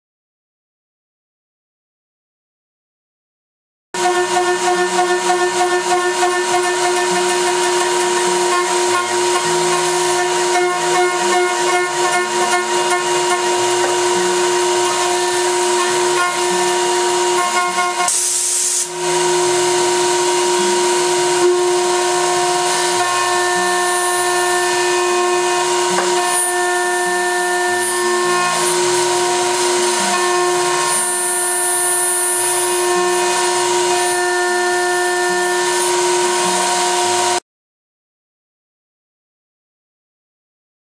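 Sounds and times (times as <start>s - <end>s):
router spindle whining: 4.0s - 18.1s, 18.8s - 37.4s
hiss of metal cutting: 11.9s - 37.4s.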